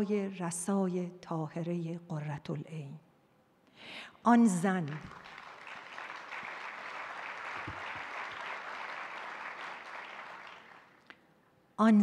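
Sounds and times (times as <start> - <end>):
audience applauding: 4.9 - 11.1.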